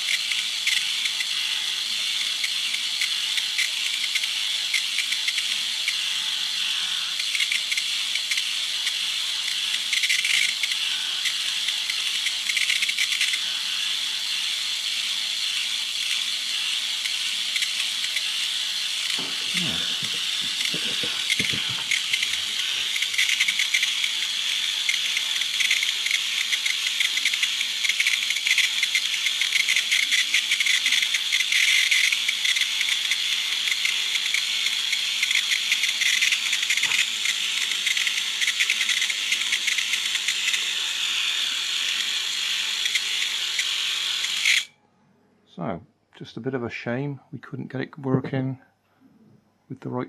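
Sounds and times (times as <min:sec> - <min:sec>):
plastic gears rattling: 0:00.0 - 0:01.4, 0:02.1 - 0:06.0, 0:07.1 - 0:13.4, 0:19.0 - 0:44.7
small motor buzzing: 0:00.0 - 0:44.7.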